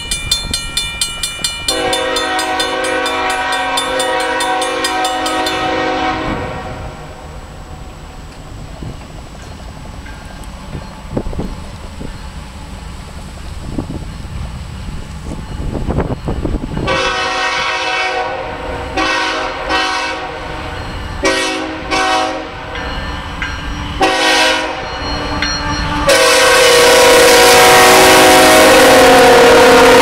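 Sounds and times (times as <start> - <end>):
rumble of passing train: 0.0 - 30.0
locomotive air horn blasts: 1.7 - 7.2, 16.8 - 22.8, 23.8 - 30.0.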